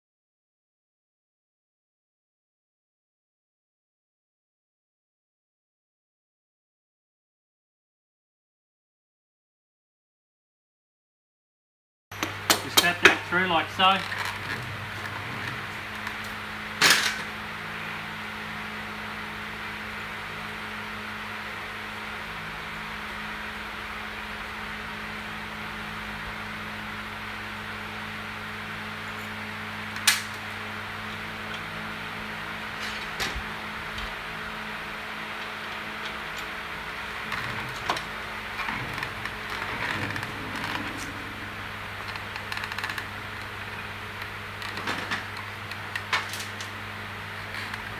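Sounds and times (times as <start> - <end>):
steady low hum: 12.2 - 47.9.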